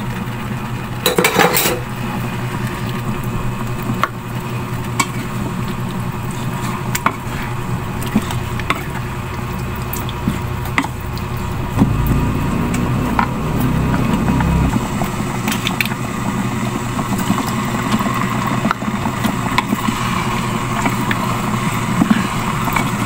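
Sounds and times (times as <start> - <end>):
pork sizzling in a pan: 0.0 - 14.0, 14.7 - 23.0
spatula stirring thick sauce: 4.8 - 11.5.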